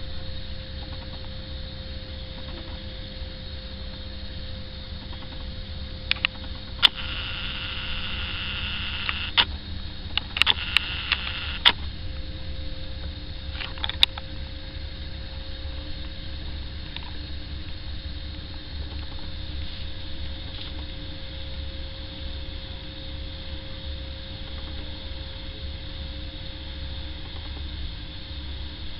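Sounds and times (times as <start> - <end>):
sharp clicks: 5.0 - 5.5, 6.1 - 9.5, 10.1 - 11.8, 13.6 - 14.2.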